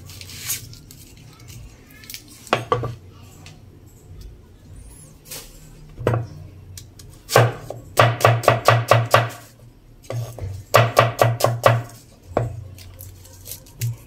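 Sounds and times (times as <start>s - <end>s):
knife chopping on wooden board: 7.3s - 9.5s, 10.1s - 12.6s.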